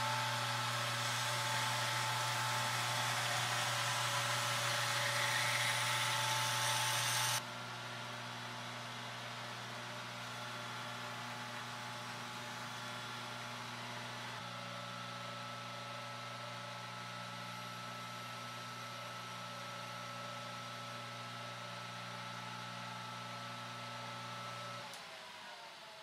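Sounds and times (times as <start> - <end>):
abrasive belt hissing on steel: 0.0 - 7.4
belt grinder motor hum: 0.0 - 7.4.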